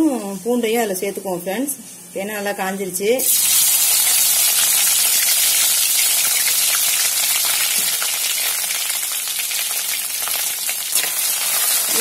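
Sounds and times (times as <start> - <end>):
hot oil sizzling in a pan: 3.2 - 12.0
oil crackles and pops: 3.3 - 12.0.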